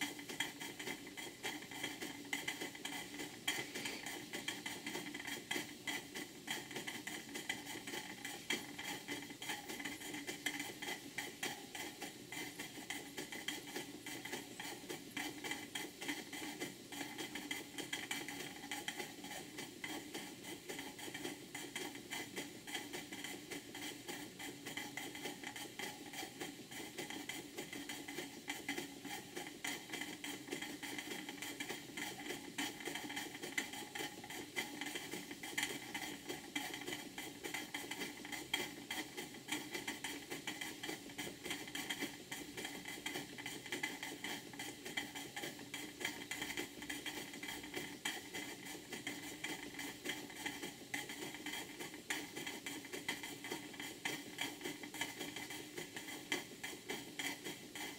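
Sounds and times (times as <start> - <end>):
steam engines ticking and clattering: 0.0 - 57.9
steam hiss: 3.0 - 5.0.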